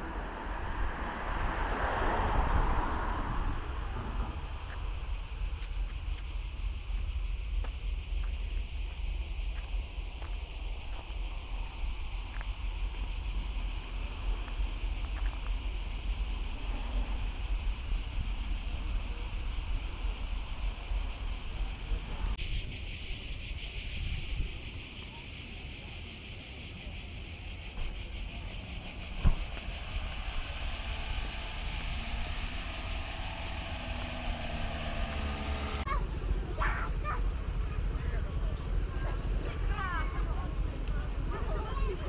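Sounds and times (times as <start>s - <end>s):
wind rumble on microphone: 0.0s - 24.9s
cicadas buzzing: 0.0s - 42.0s.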